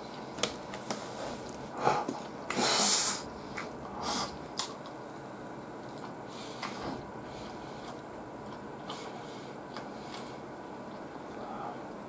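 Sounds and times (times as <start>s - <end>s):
sharp breath through nose: 2.6s - 3.3s.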